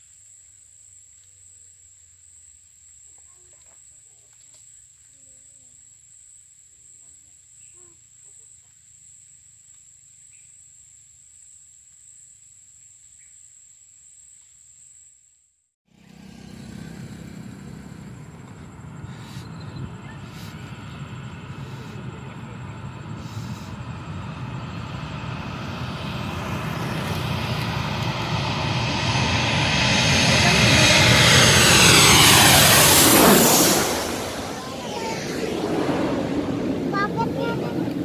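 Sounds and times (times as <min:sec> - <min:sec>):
insects droning: 0:00.0 - 0:38.0
aircraft rumbling overhead: 0:15.9 - 0:38.0.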